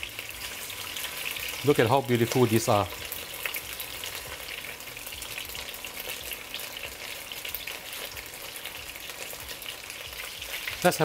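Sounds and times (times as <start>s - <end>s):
chicken frying in oil: 0.0s - 11.0s.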